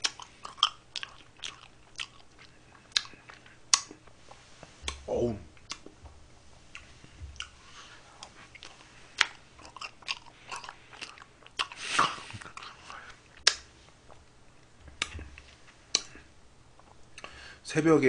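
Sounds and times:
chewing and wet mouth smacks: 0:00.0 - 0:04.2, 0:05.6 - 0:06.0, 0:08.2 - 0:17.3.

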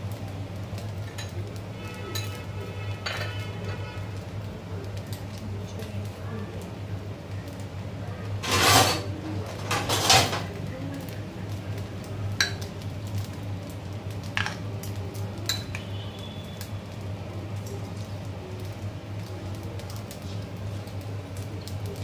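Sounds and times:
spoon scraping glass bowl: 0:08.4 - 0:09.0.

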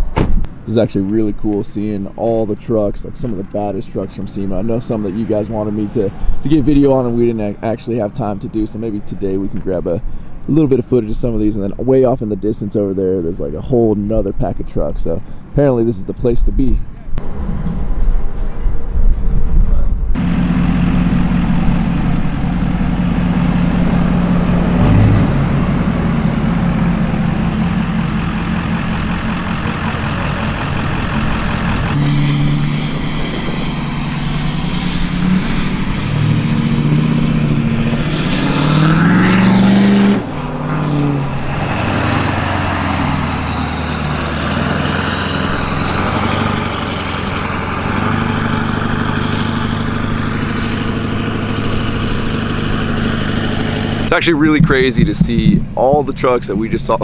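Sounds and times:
pickup truck engines driving past: 0:00.5 - 0:13.0, 0:20.2 - 0:57.0
engine revving: 0:20.2 - 0:57.0.

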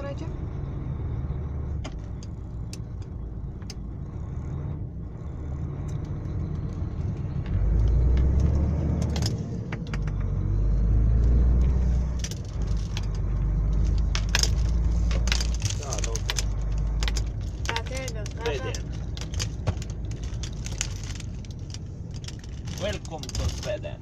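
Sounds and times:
truck engine drone from cab: 0:00.0 - 0:24.0
loose things rattling in cab: 0:12.0 - 0:24.0.

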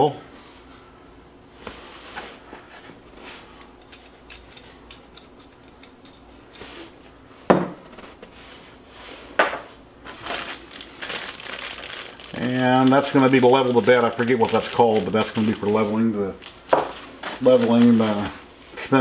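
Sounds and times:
rummaging metal parts in box: 0:10.1 - 0:15.8, 0:17.2 - 0:18.4.

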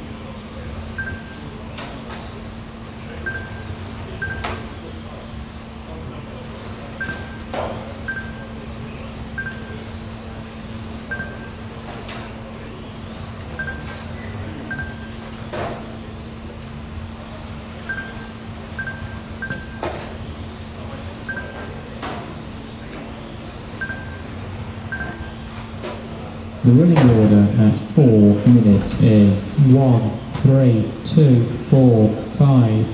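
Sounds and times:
steady low hum: 0:00.0 - 0:32.9
short electronic beeps: 0:01.0 - 0:01.4, 0:03.3 - 0:04.6, 0:07.0 - 0:07.5, 0:08.1 - 0:08.6, 0:09.4 - 0:09.9, 0:11.1 - 0:11.7, 0:13.6 - 0:14.0, 0:14.7 - 0:15.2, 0:17.9 - 0:19.9, 0:21.3 - 0:21.7, 0:23.8 - 0:24.3, 0:24.9 - 0:25.4.

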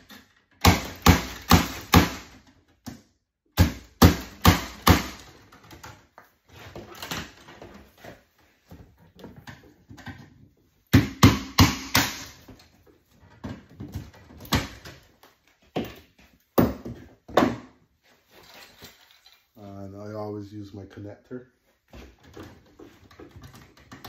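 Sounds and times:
rustling of hands on cable: 0:18.0 - 0:19.5.

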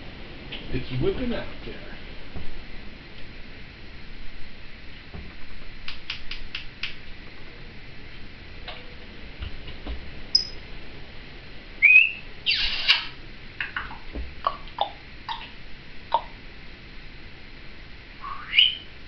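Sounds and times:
parrot clicks: 0:05.9 - 0:07.0
parrot whistling and chirping: 0:10.3 - 0:10.6, 0:11.8 - 0:13.1, 0:18.2 - 0:19.0
parrot squawk: 0:11.8 - 0:15.5, 0:18.2 - 0:18.9.

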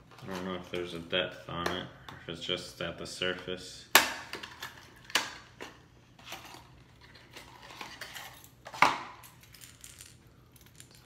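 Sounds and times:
plastic and cardboard packaging rustling: 0:06.1 - 0:08.9.

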